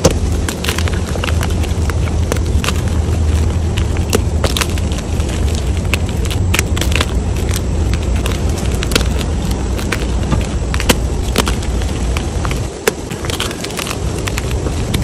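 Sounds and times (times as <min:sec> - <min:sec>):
chalk crackling and crunching: 0:00.0 - 0:15.0
steady low rumble: 0:00.0 - 0:15.0.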